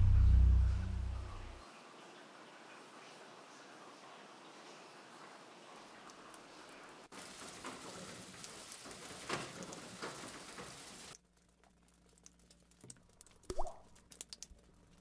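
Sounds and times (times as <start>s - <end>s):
rain pattering: 0.0s - 15.0s
scattered drips: 5.7s - 15.0s.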